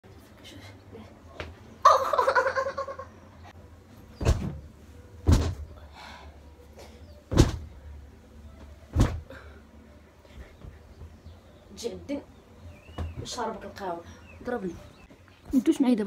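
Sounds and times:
heavy thumps: 4.2s - 5.8s, 7.3s - 7.8s, 8.9s - 9.3s.

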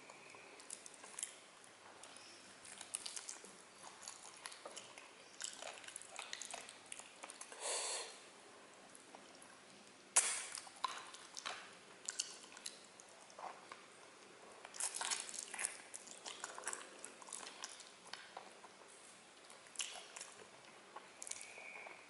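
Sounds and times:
wet smacking and chewing: 0.1s - 7.6s, 8.9s - 22.0s
sharp mouth clicks: 10.2s - 11.0s.

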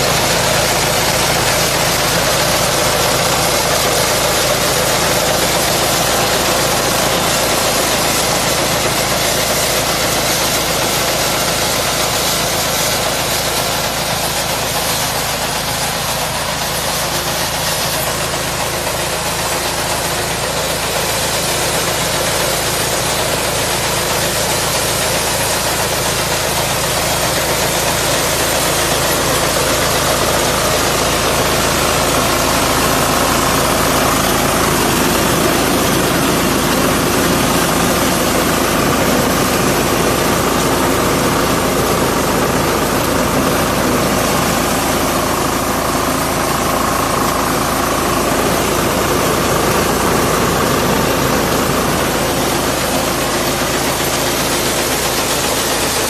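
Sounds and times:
combine harvester running: 0.0s - 56.0s.

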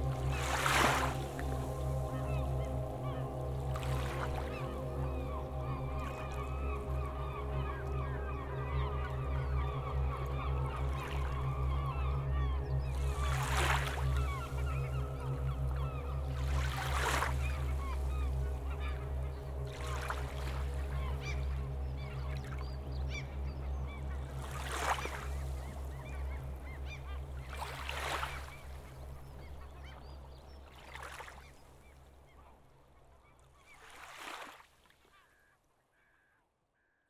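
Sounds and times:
wash of electronic noise: 0.0s - 19.0s
steady low drone: 0.0s - 30.7s
bird calls: 0.0s - 32.6s.

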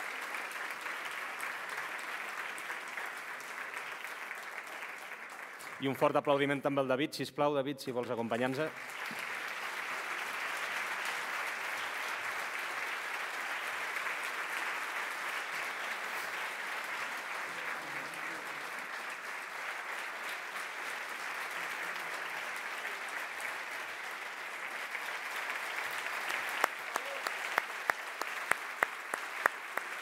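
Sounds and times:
crowd applauding: 0.0s - 6.6s, 8.0s - 30.0s.

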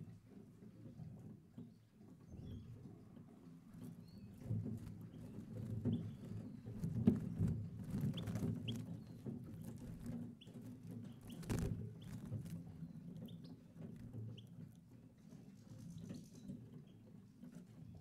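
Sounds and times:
birds clicking and fluttering: 3.7s - 17.9s.

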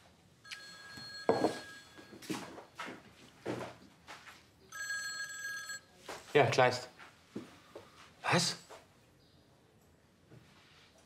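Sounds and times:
phone ringtone: 0.4s - 2.6s, 4.7s - 5.9s.

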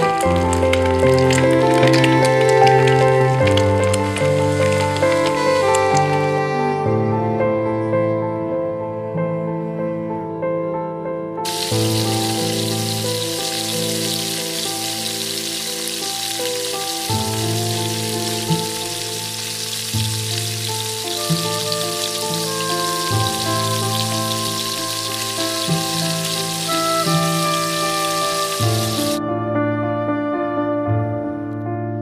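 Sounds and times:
onion sizzling in hot oil: 0.0s - 6.2s, 11.5s - 29.2s
gentle background music: 0.0s - 32.0s.

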